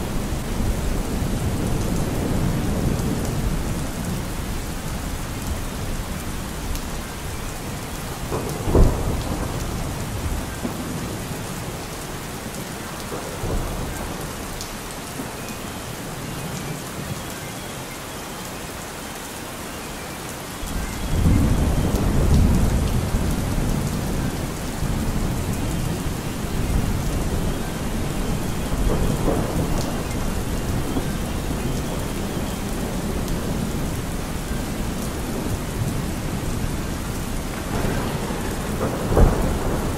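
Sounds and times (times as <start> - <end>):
steady rain: 0.0 - 39.9
thunder crack and rumble: 8.0 - 11.9, 13.0 - 14.6, 20.6 - 39.9.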